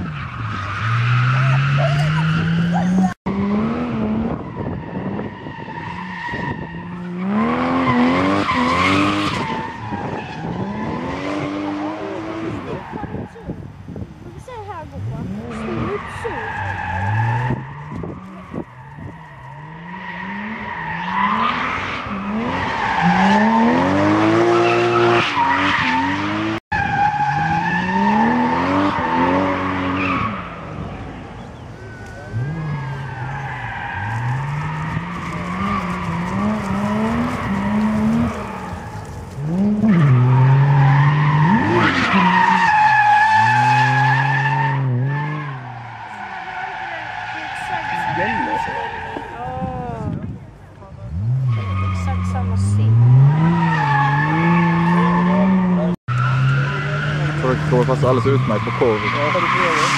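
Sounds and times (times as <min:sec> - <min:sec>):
car engine revving: 0:14.8 - 0:50.2, 0:50.9 - 0:59.9.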